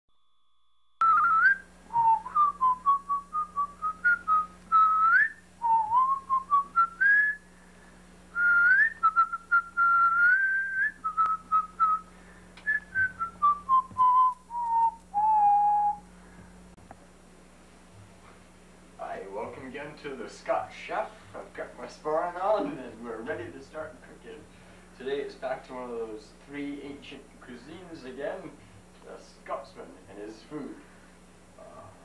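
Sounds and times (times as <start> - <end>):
person whistling a tune: 1.0 - 7.5, 8.4 - 16.1.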